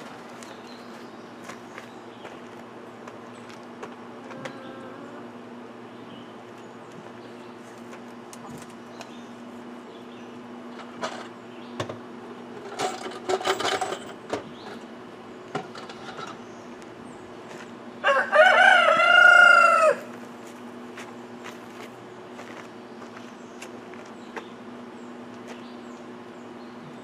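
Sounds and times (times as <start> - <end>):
rooster crowing: 18.0 - 20.2.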